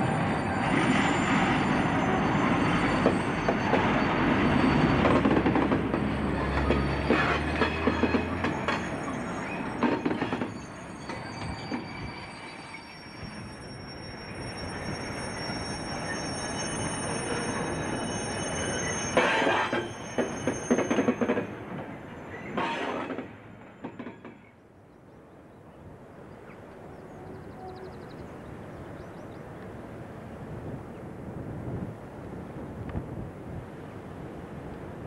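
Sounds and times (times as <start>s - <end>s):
metallic clanking and squealing: 0.4s - 21.5s.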